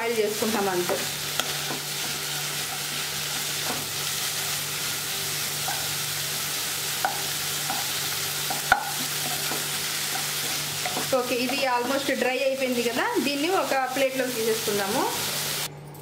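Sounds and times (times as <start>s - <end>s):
leaves sizzling in a pan: 0.0s - 15.7s
spatula tapping pan: 7.0s - 11.7s.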